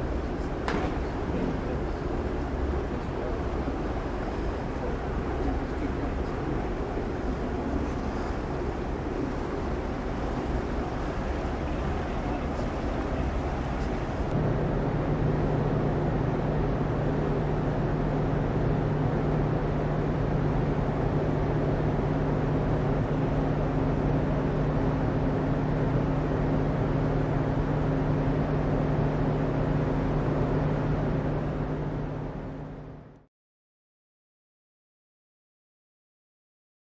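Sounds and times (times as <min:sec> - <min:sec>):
wind and water noise: 0:00.0 - 0:32.5
ship engine drone: 0:00.0 - 0:33.2.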